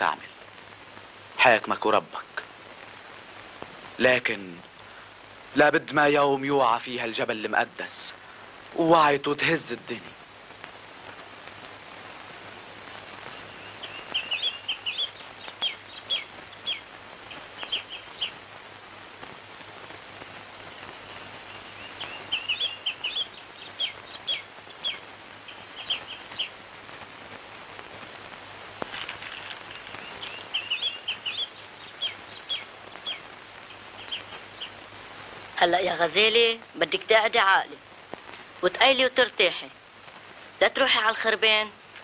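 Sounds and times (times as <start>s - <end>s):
faint steady hum: 0.0s - 42.0s
small birds chirping: 8.1s - 39.7s.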